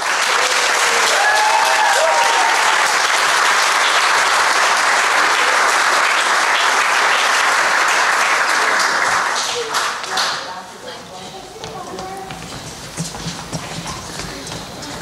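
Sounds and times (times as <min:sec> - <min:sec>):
people whooping: 0:00.0 - 0:03.0
audience applauding: 0:00.0 - 0:10.6.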